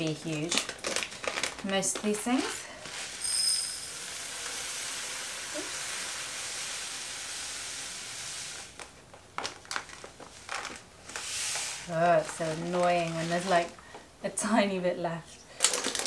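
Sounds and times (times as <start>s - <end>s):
lentils pouring into glass jar: 0.0s - 7.4s.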